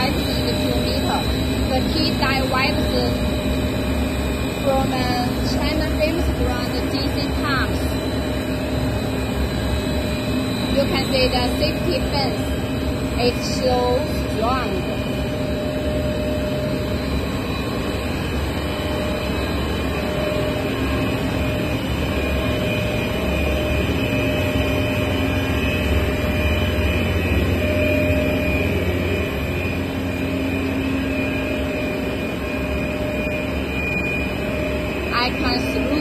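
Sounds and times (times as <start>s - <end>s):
loud machinery drone: 0.0s - 36.0s.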